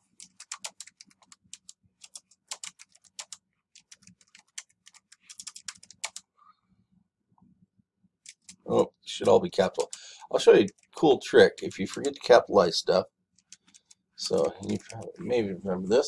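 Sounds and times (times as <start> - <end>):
typing on computer keyboard: 0.0 - 6.2, 8.2 - 8.6, 9.2 - 10.0, 10.6 - 12.2, 13.4 - 15.1.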